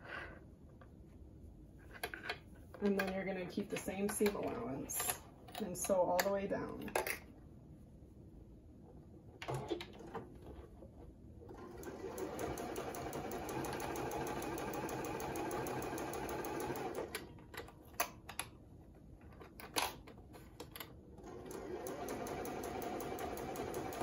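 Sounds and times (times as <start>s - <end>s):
sewing machine stitching: 11.5s - 17.2s, 21.2s - 24.0s.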